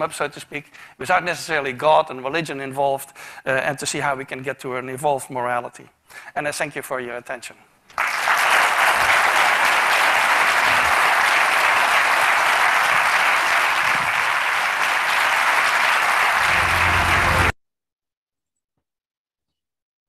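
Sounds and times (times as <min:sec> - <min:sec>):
audience applauding: 0:08.0 - 0:17.6.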